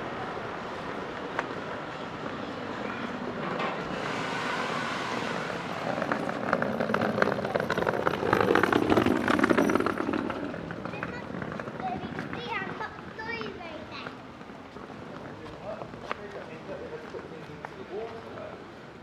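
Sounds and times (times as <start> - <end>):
vehicle driving past: 3.6 - 10.6.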